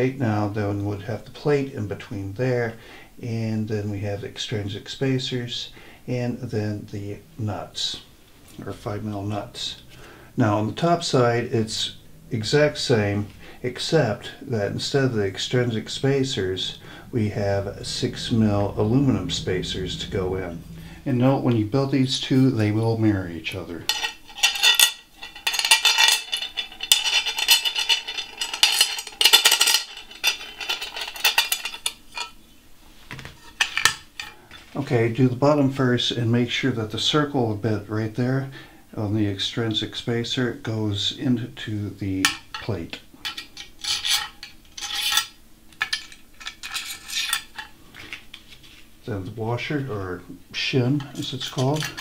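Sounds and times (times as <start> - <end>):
metal bolts clinking on metal plate: 23.9 - 32.4, 51.1 - 52.0.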